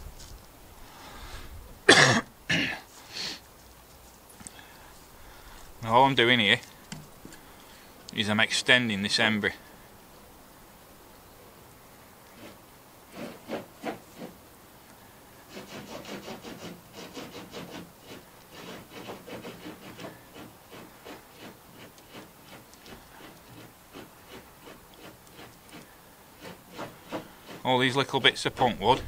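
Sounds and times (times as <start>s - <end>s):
dry wood rasping between fingers: 4.4s - 7.9s, 12.3s - 14.4s, 15.5s - 29.0s.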